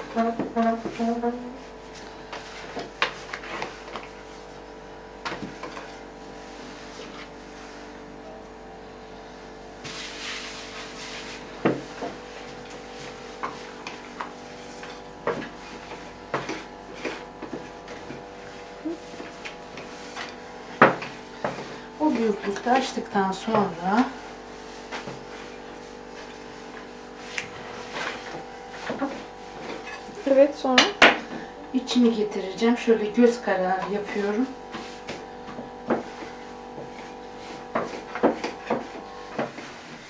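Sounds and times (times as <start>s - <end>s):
faint background hum: 0.0s - 40.0s
hand rubbing dough: 9.6s - 30.8s, 31.4s - 40.0s.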